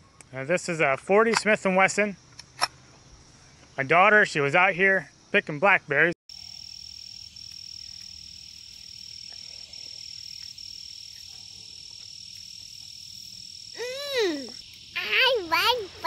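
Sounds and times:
insects trilling: 0:00.0 - 0:16.0
child's voice: 0:13.8 - 0:16.0.

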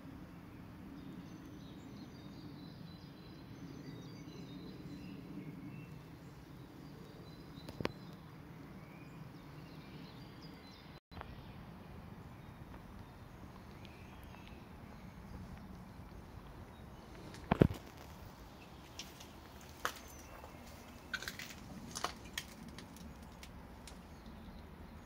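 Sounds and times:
bird chirps: 0:01.1 - 0:08.2, 0:12.3 - 0:17.7.

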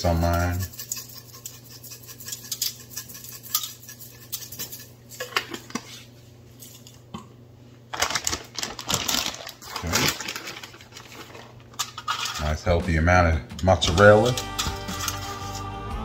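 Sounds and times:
metal utensil scraping and tapping: 0:00.0 - 0:05.8, 0:13.6 - 0:15.7
plastic bag crinkling: 0:07.9 - 0:12.2.

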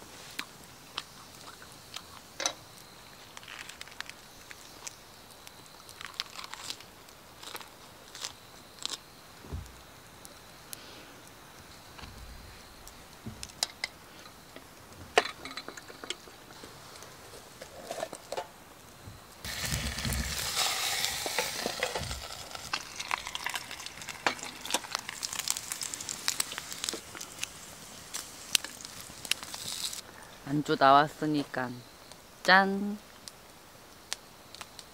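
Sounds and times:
frying with crackles: 0:00.0 - 0:34.9
meat sizzling on a grill pan: 0:19.4 - 0:30.0.

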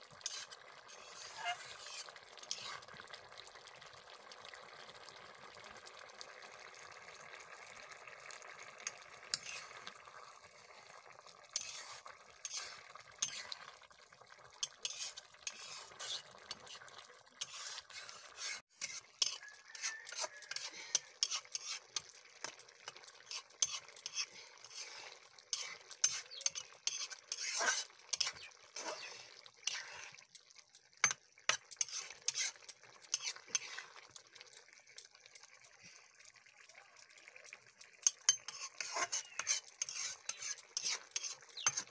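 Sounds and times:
curry bubbling hiss: 0:00.0 - 0:41.9
metal spatula scraping pan: 0:00.1 - 0:02.9, 0:08.8 - 0:09.9, 0:11.5 - 0:13.7, 0:14.6 - 0:30.2, 0:31.0 - 0:34.2, 0:38.0 - 0:41.9.

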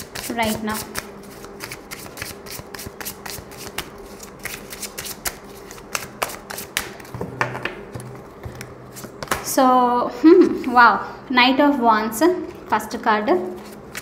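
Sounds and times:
cards being shuffled: 0:00.0 - 0:07.2, 0:13.5 - 0:14.0.

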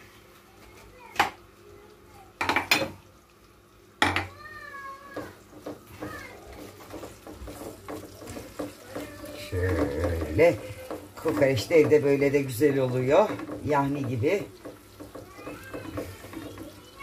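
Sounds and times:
spatula knocking in frying pan: 0:02.4 - 0:03.0, 0:04.0 - 0:04.4, 0:05.1 - 0:17.0.

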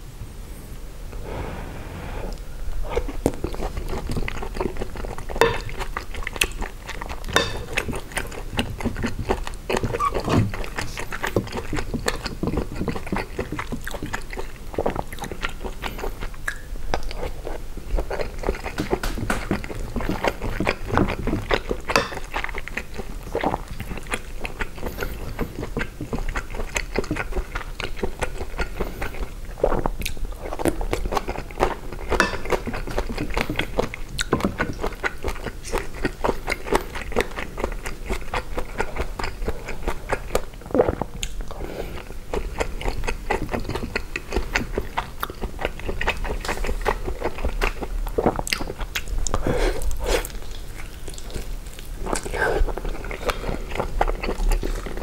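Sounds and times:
chewing and mouth smacks: 0:02.9 - 0:55.0.

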